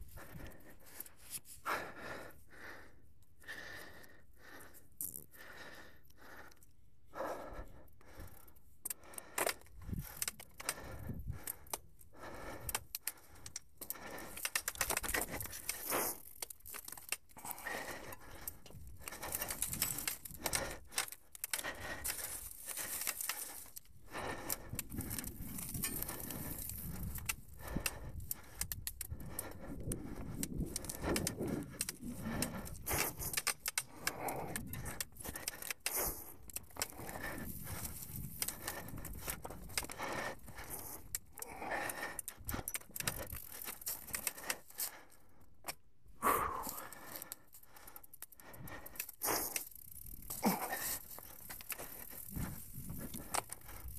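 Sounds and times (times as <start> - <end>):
bike rattling and clattering: 13.8 - 44.8, 48.9 - 53.9.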